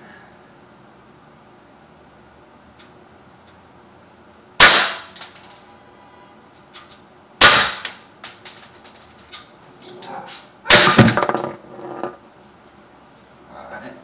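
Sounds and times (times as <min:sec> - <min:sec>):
air pistol shots hitting glass: 0:04.6 - 0:05.4, 0:07.4 - 0:08.1.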